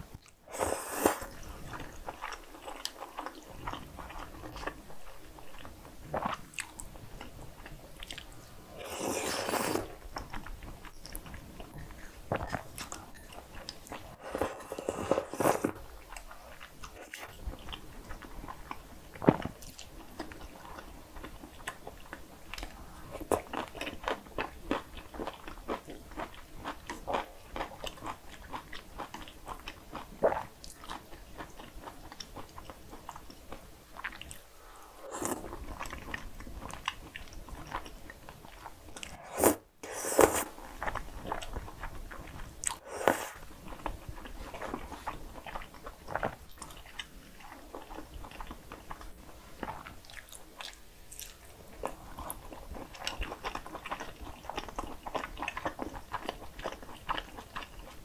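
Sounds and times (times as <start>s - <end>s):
noodles slurped: 0.5s - 1.5s, 8.7s - 10.0s, 14.0s - 15.8s, 34.6s - 35.9s, 39.0s - 40.9s, 42.6s - 43.4s
chewing: 5.5s - 58.0s.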